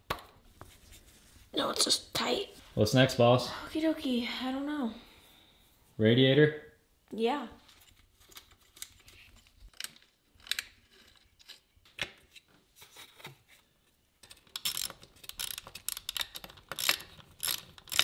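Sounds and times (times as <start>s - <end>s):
ratchet wrench clicking: 14.6s - 18.0s.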